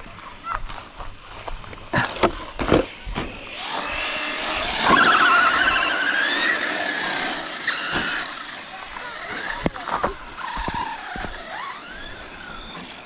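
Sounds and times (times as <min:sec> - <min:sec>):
rc car motor whine: 0:02.8 - 0:13.0.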